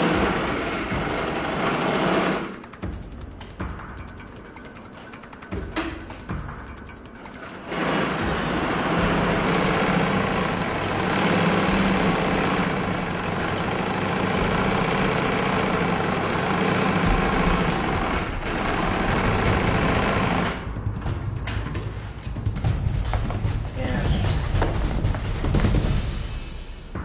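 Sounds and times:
sewing machine running: 0.0 - 2.7, 7.3 - 20.6.

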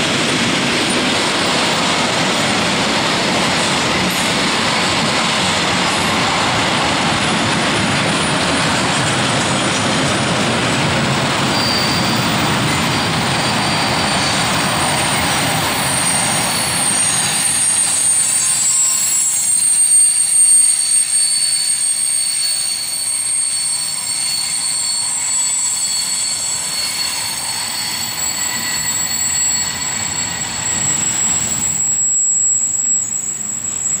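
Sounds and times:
freight train wheels rumbling: 0.0 - 34.0
high-pitched wheel squeal: 11.2 - 34.0.

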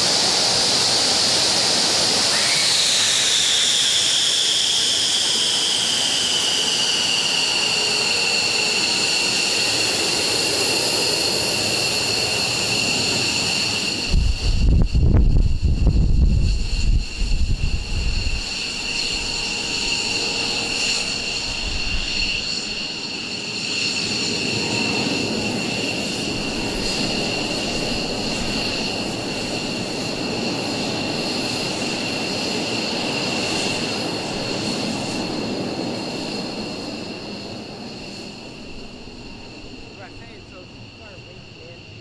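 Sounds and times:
jet engines whining and rumbling: 0.0 - 42.0.

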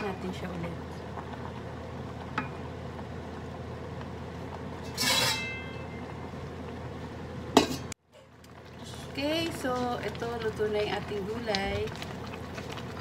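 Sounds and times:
steady background hum: 0.0 - 13.0
metal pot lid clattering: 4.8 - 5.8, 7.6 - 7.9.

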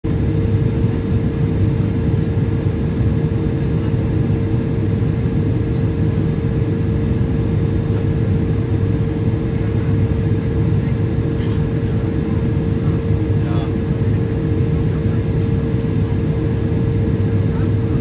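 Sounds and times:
constant cabin hum: 0.1 - 18.0
jet engine rumble in cabin: 0.1 - 18.0.

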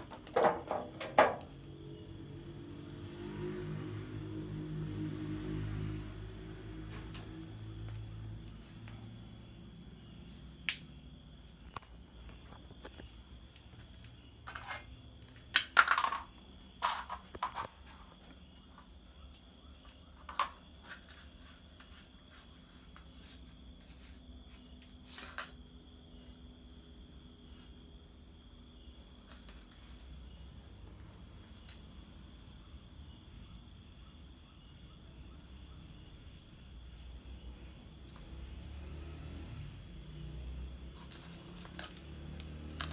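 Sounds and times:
plastic cup clattering on concrete: 0.0 - 1.5, 14.4 - 18.2, 20.2 - 21.1, 41.0 - 42.9
insects chirring: 0.0 - 42.9.

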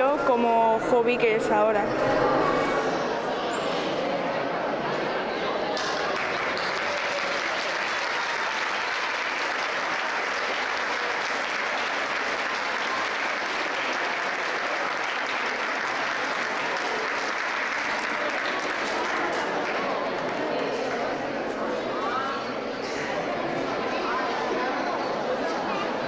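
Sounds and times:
applause: 5.6 - 21.5.

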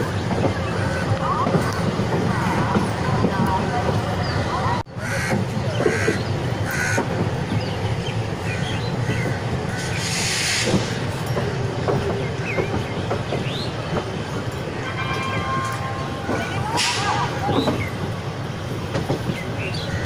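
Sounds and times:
train coach rumbling: 0.0 - 20.0
wheels clicking over rail joints: 0.0 - 20.0
hiss burst: 9.8 - 11.0.

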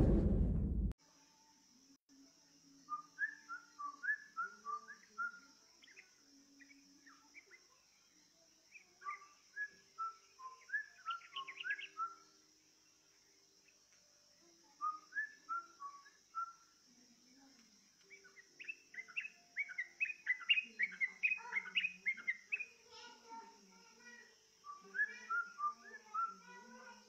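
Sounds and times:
faint steady hiss: 1.0 - 27.0
bird song whistled notes: 2.8 - 12.4, 14.7 - 16.8, 18.0 - 27.0.

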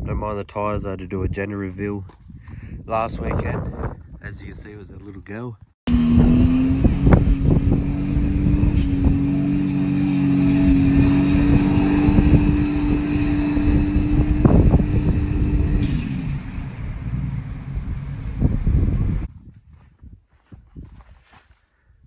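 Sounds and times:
car engine revving high: 5.9 - 19.3.

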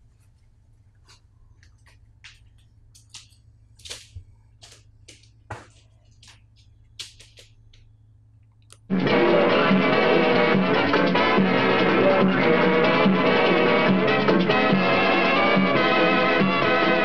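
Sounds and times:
low steady hum: 0.0 - 10.8.

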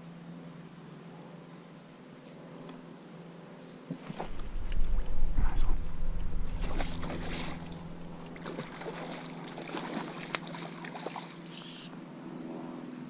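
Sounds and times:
wind buffeting microphone: 4.1 - 9.3.

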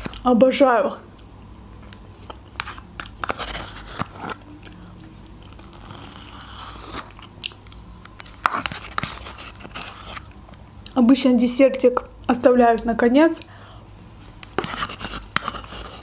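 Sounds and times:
metal spoon scraping plastic cup: 14.4 - 16.0.

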